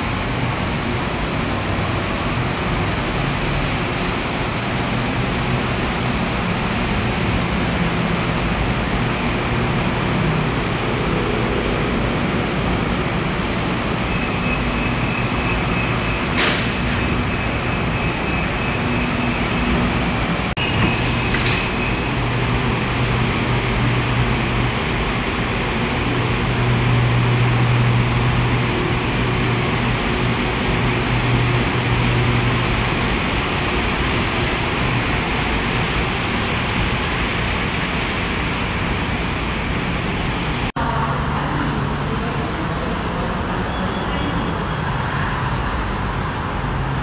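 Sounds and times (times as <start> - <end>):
monorail train hum: 0.0 - 47.0
sliding doors clunking: 16.2 - 23.2.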